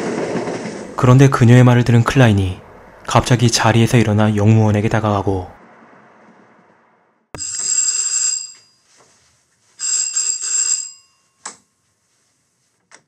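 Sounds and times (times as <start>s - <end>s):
electric doorbell ringing: 7.4s - 8.9s, 9.8s - 11.7s.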